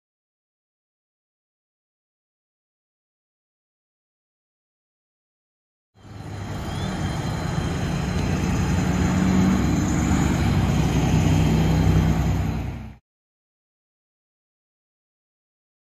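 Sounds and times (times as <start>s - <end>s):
cars passing by: 6.0s - 13.0s
diesel truck engines droning: 6.0s - 13.0s.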